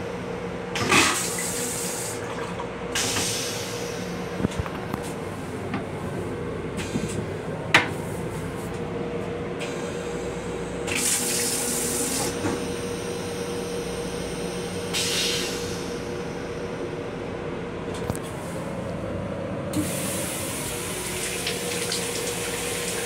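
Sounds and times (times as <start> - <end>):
toilet water spray hissing: 19.8 - 23.0.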